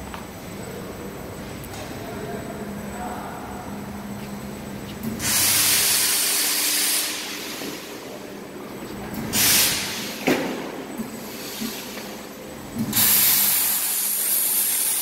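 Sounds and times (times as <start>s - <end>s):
faint machine hum: 0.0s - 15.0s
machinery hissing: 5.2s - 8.3s, 9.2s - 10.3s, 11.0s - 12.2s, 12.8s - 15.0s.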